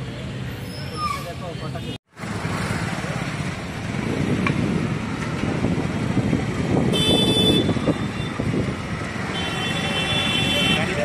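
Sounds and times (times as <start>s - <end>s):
road traffic: 0.0s - 11.0s
car horn: 6.9s - 8.4s, 9.3s - 11.0s.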